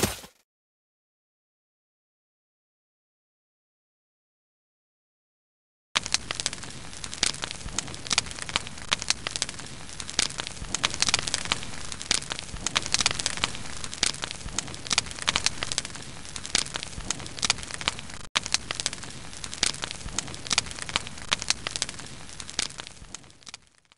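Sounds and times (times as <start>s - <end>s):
campfire crackling and popping: 6.0s - 23.9s.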